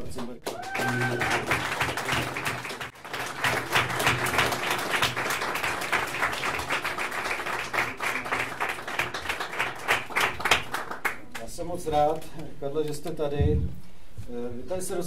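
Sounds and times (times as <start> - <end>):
audience applauding: 0.4 - 11.4.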